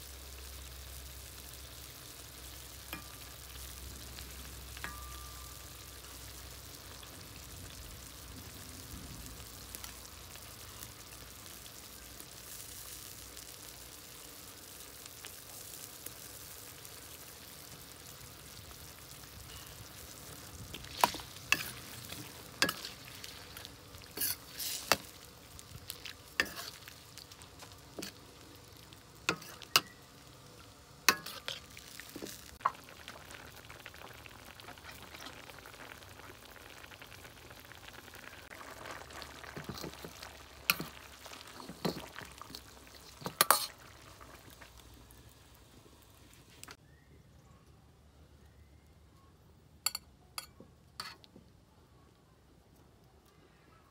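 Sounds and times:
food sizzling in a wok: 0.0s - 46.8s, 49.9s - 51.3s
utensil clanking and scraping wok: 2.8s - 3.5s, 19.4s - 25.4s, 26.0s - 28.3s, 29.2s - 30.0s, 31.0s - 32.8s, 39.5s - 43.8s, 49.9s - 51.3s.

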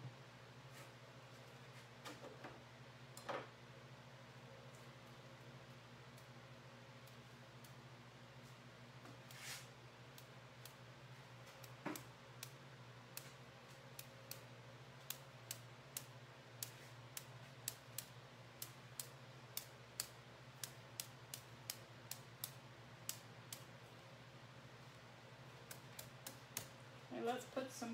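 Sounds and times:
faint steady hum: 0.0s - 27.9s
brush tapping ticks: 10.1s - 10.8s, 11.4s - 23.7s, 24.9s - 26.8s.

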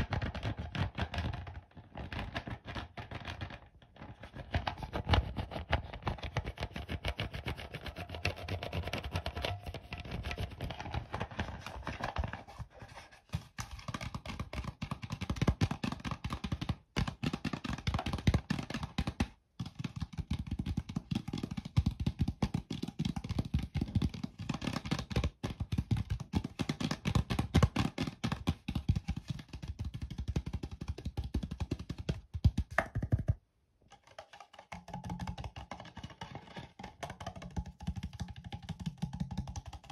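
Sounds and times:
tapping plastic bottle: 13.4s - 39.9s.

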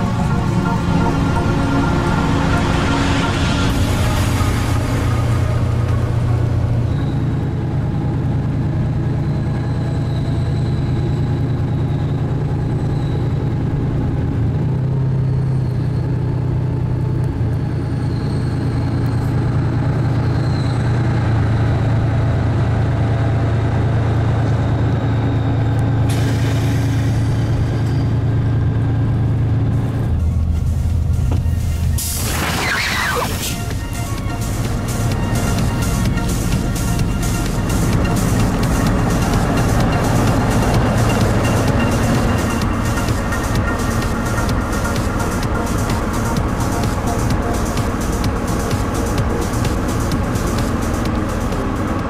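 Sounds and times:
rushing noise: 0.0s - 13.6s, 25.9s - 52.0s
train diesel engine drone: 0.0s - 52.0s.

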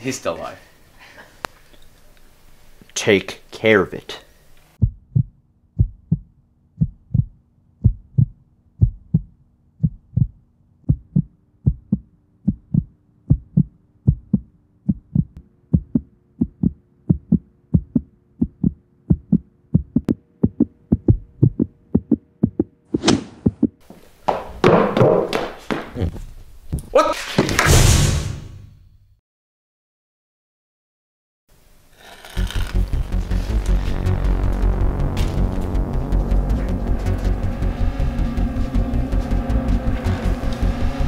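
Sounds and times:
low pulse: 4.8s - 22.9s, 32.4s - 41.0s
held drone rising in pitch: 32.5s - 41.0s.

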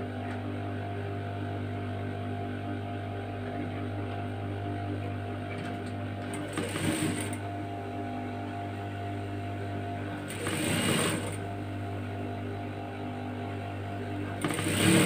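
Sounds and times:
sewing machine electric hum: 0.0s - 15.0s
sewing machine stitching: 6.2s - 7.4s, 10.2s - 11.4s, 14.4s - 15.0s.

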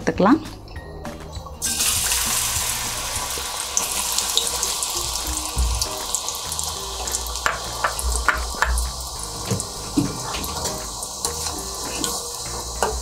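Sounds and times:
oil bubbling with pops and crackles: 3.2s - 12.2s.

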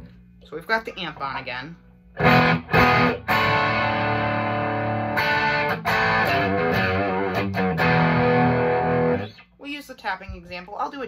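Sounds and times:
bent guitar notes: 2.2s - 9.4s
electric guitar chords: 2.2s - 9.4s.

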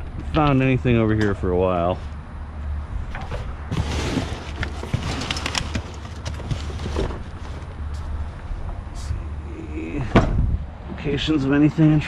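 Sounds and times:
sharp clicks and rattles: 4.5s - 7.0s.

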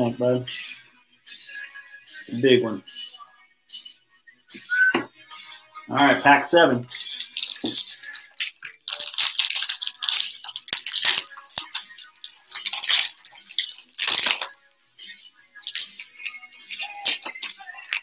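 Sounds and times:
foil wrapper crinkling: 6.8s - 14.5s, 15.6s - 18.0s.

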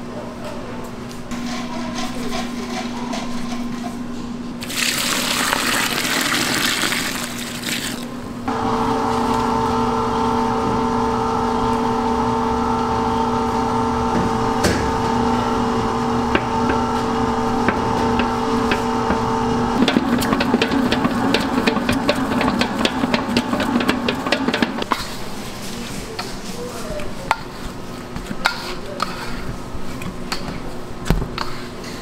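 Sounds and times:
stand mixer motor humming: 8.5s - 24.8s
dough knocking in mixer bowl: 14.0s - 24.9s.

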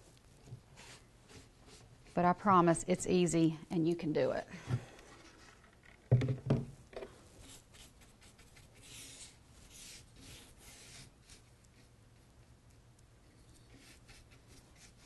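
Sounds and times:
brush scratching on frame: 7.4s - 12.4s, 13.3s - 15.0s.

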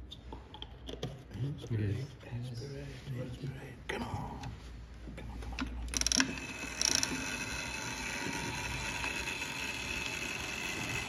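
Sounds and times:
drum motor whirring: 5.9s - 11.0s
motor rattling: 5.9s - 11.0s.

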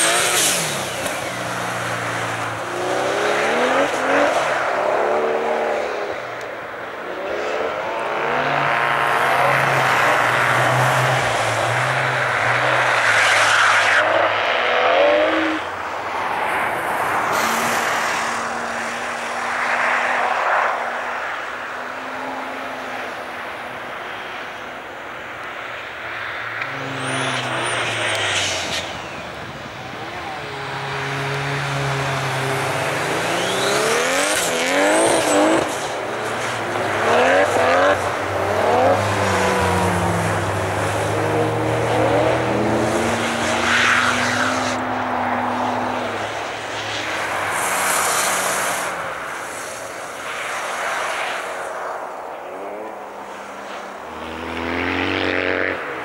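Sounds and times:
car engine revving: 0.0s - 6.4s, 26.4s - 49.6s.

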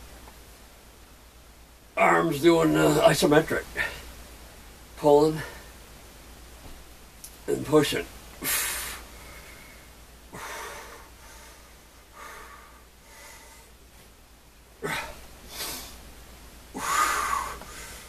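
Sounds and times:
man breathing heavily: 8.4s - 13.9s, 14.8s - 16.1s, 16.7s - 18.0s.

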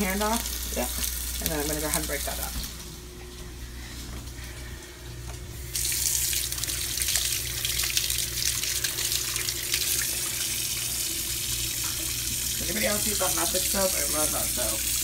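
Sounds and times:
faucet turned on: 5.7s - 15.0s.

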